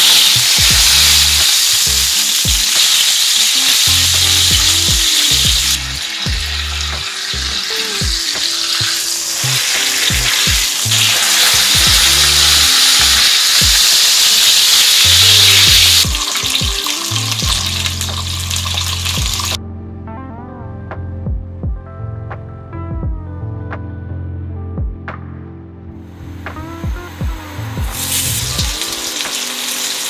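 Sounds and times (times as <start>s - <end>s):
fish sizzling in oil: 0.0s - 19.6s, 27.9s - 30.0s.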